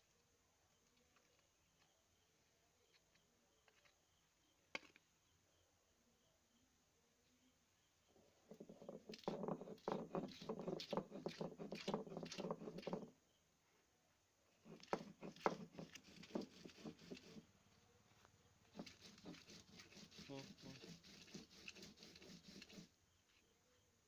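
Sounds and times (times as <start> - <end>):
stone scraping on stone: 8.5 - 13.1, 14.6 - 17.4, 18.7 - 22.9.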